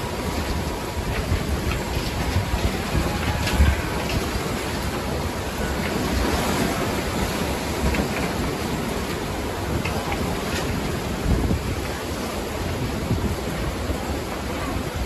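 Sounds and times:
waves splashing against wall: 0:00.0 - 0:15.0
wind buffeting microphone: 0:00.0 - 0:15.0.

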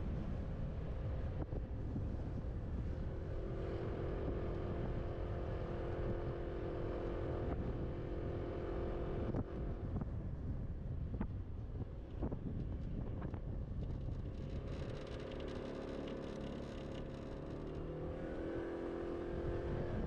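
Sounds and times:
wind buffeting microphone: 0:07.3 - 0:15.0.

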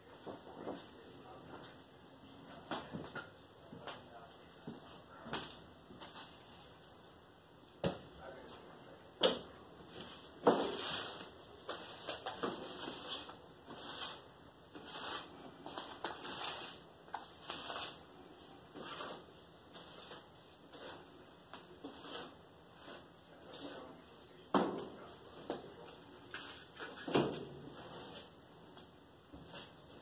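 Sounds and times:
soil scraping and rustling: 0:10.7 - 0:18.1.

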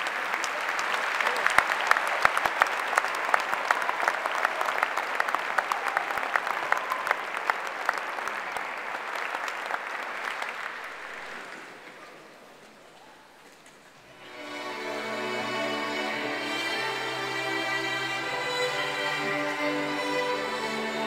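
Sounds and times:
large audience clapping: 0:00.0 - 0:12.8.

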